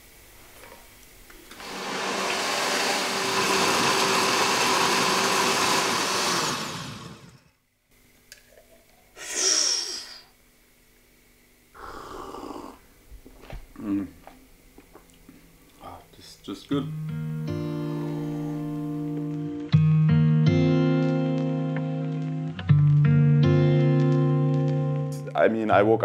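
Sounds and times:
blender crushing ice: 0:01.5 - 0:07.5.

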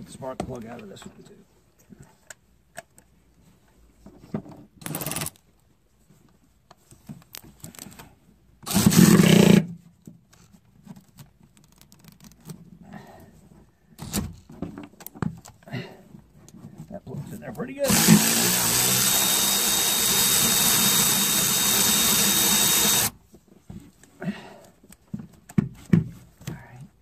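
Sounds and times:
cordless electric ratchet running: 0:17.8 - 0:23.2.

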